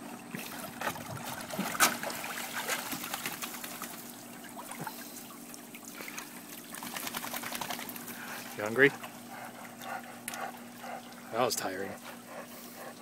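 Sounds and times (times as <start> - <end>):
water splashing off a dog: 0.3 - 8.3.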